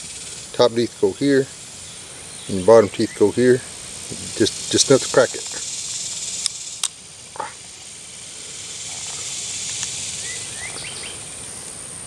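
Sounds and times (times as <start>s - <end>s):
insects buzzing: 0.0s - 12.0s
shell cracking: 6.4s - 7.0s, 8.9s - 10.0s.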